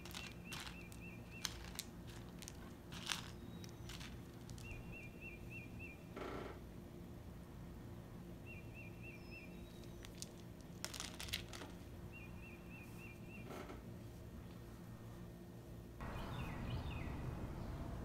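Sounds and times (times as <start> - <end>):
bird chirping: 0.0 - 2.2, 3.0 - 6.2, 8.4 - 10.4, 12.1 - 13.5, 16.0 - 18.0
rustling: 0.0 - 5.4, 9.8 - 11.9
low steady hum: 0.0 - 18.0.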